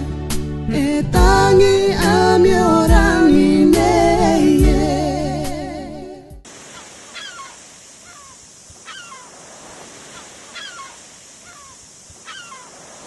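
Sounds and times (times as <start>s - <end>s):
surf hissing: 6.5s - 13.0s
gull calling: 6.6s - 13.0s.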